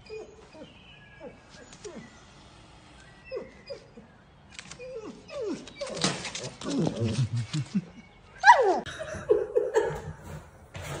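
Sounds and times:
dog whimpering: 4.8 - 7.0.

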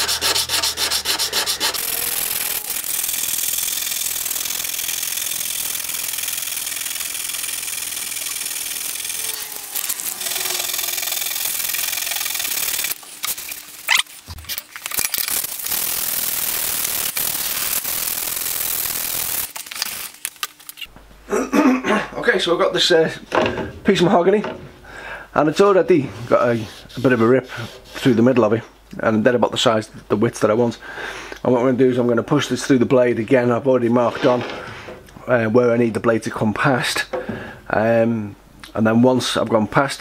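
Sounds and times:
sandpaper rasping on metal: 0.0 - 3.7, 8.8 - 13.0, 26.4 - 28.1.

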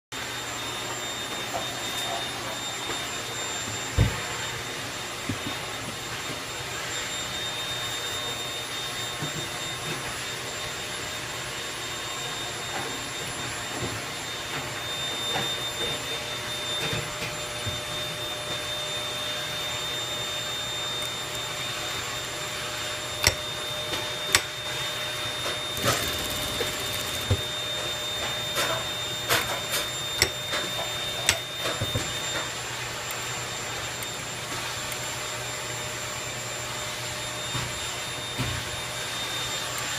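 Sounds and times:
sewing machine whirring: 20.6 - 32.2
sharp clicks: 25.8 - 27.4.

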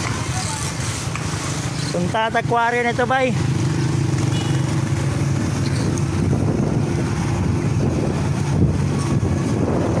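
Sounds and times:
vehicle engine running: 0.0 - 10.0
wind rumbling on microphone: 5.0 - 10.0.

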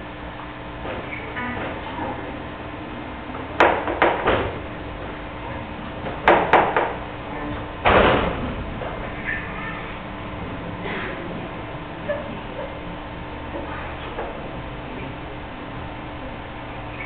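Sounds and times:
steady low hum: 0.0 - 17.0
sharp knocks: 3.6 - 4.6, 6.0 - 7.0
heavy thump: 7.8 - 8.9.

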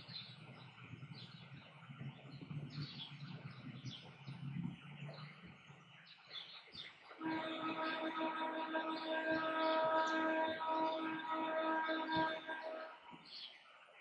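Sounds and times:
low hum: 7.2 - 13.2.

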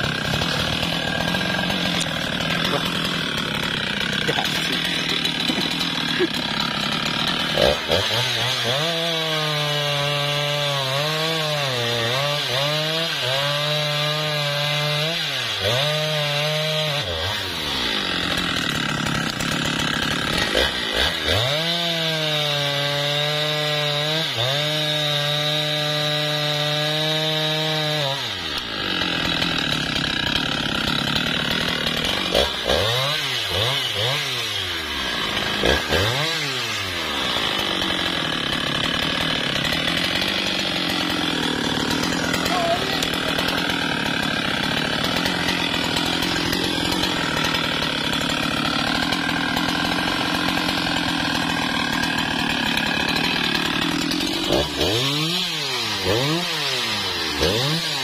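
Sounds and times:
chainsaw cutting log: 0.0 - 58.0
chainsaw throttle blips: 0.0 - 58.0.

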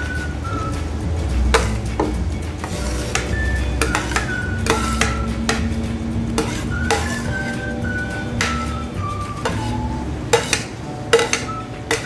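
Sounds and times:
background music with held tones: 0.0 - 12.0
metal spoon scraping a plate: 2.6 - 5.7, 6.3 - 7.8, 8.4 - 12.0.

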